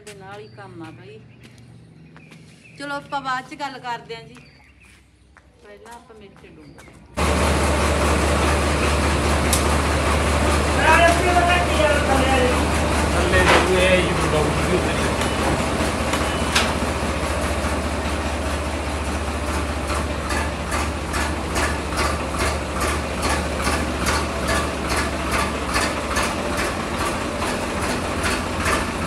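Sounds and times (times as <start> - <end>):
tractor engine idling: 7.1 - 29.0.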